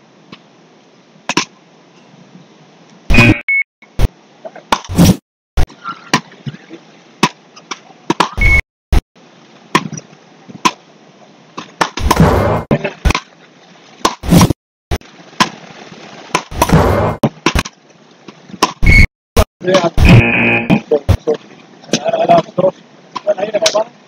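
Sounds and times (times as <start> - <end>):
rackets hitting a ball: 1.3 - 1.5, 7.2 - 8.4, 11.6 - 13.2.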